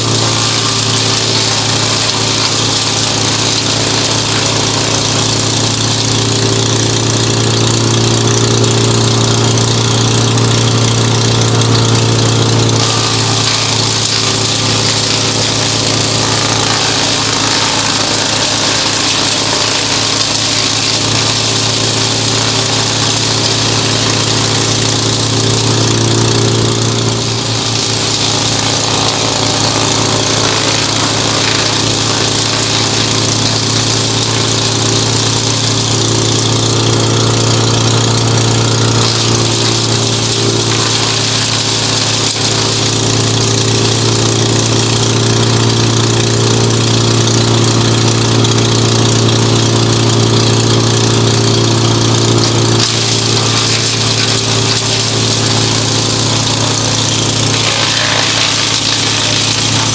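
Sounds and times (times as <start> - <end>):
wood chipper chipping branches: 0.0 - 59.9.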